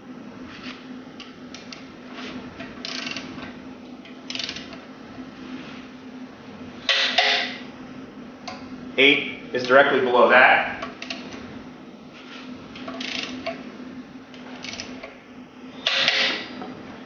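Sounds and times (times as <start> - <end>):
steady low hum: 0.0 - 17.0
torque wrench ratcheting clicks: 2.8 - 3.3, 4.3 - 4.8, 12.9 - 13.6, 14.6 - 15.1.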